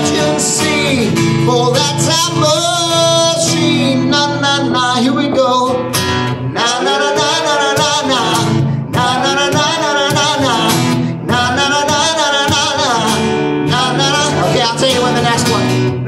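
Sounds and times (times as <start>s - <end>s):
acoustic guitar strumming: 0.0s - 16.0s
man singing with vibrato: 0.0s - 16.0s.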